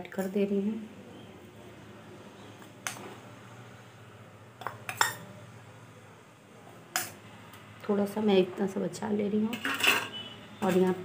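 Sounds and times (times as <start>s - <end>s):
steel spoon clinking on bowls: 4.6s - 5.3s.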